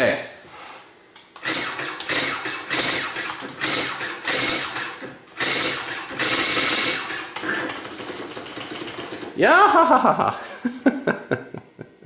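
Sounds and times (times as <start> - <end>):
daisy wheel printer clattering: 1.4 - 9.4.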